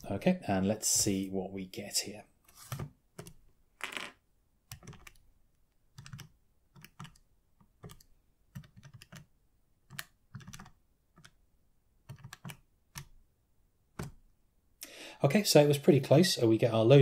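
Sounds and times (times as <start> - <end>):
calculator keys clicking: 6.0 - 7.2, 7.8 - 9.3, 9.9 - 11.4, 12.1 - 13.1.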